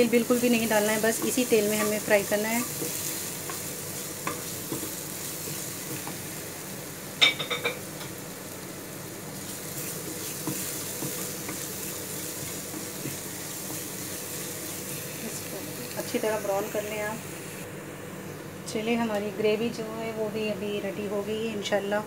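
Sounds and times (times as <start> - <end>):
garlic sizzling in a frying pan: 0.0 - 18.1
spatula clacking against pan: 2.8 - 6.2.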